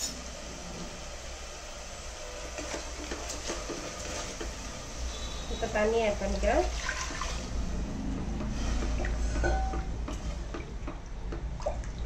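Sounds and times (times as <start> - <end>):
water pouring into pot: 6.2 - 7.8
spatula stirring and knocking pot: 8.3 - 11.6.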